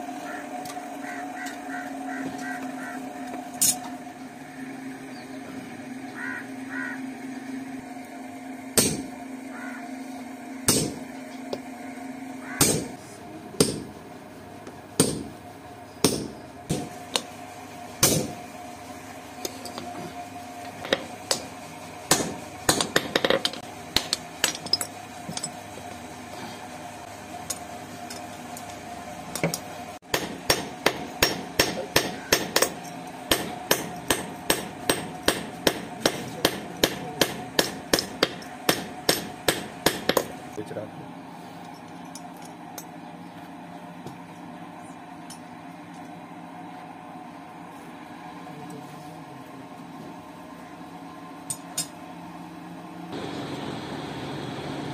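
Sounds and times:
hammer striking steel on anvil: 0:08.8 - 0:09.1, 0:10.7 - 0:11.0, 0:12.6 - 0:12.9, 0:13.6 - 0:13.9, 0:15.0 - 0:15.3, 0:16.0 - 0:17.3, 0:18.0 - 0:18.4, 0:22.1 - 0:25.5, 0:29.4 - 0:40.4.

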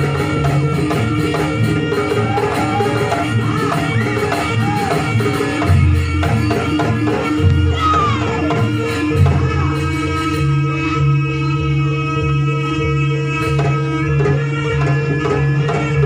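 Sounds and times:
drums beating steady rhythm: 0:00.0 - 0:16.0
wavering melody line: 0:01.6 - 0:12.0.

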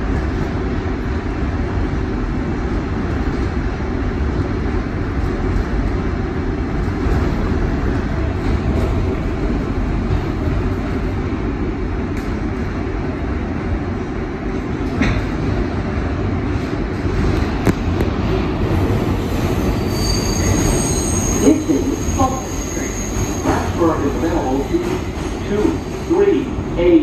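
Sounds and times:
subway train wheels rumbling on rails: 0:00.0 - 0:27.0.

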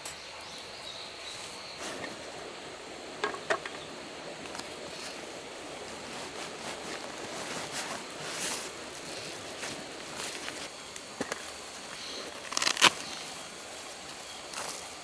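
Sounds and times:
fabric rustling: 0:04.8 - 0:10.7.

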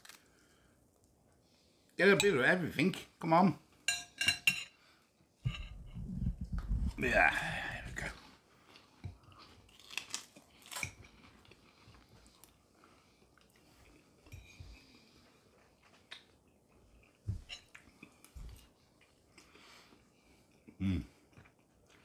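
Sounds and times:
low thumps: 0:05.5 - 0:07.0
man chewing noodles: 0:08.4 - 0:22.0.

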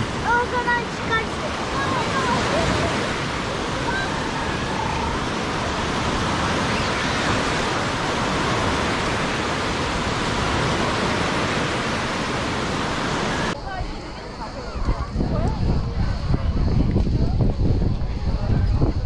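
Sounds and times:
surf breaking on beach: 0:00.0 - 0:13.6.

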